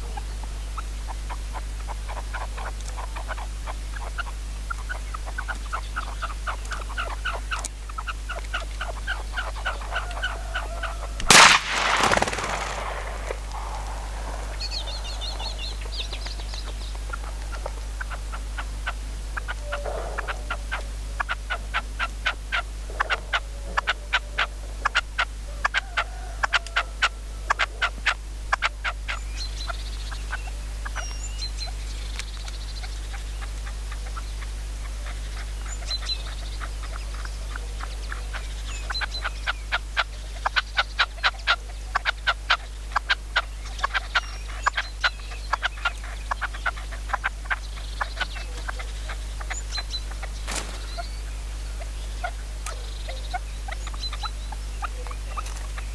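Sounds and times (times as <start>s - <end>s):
small birds chirping faintly: 0.0s - 55.9s
partridge calling harshly: 50.3s - 51.3s.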